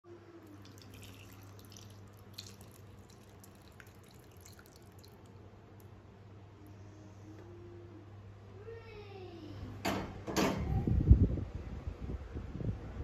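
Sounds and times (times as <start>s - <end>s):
steady low hum: 0.0s - 13.0s
liquid splashing and dripping: 0.6s - 5.9s.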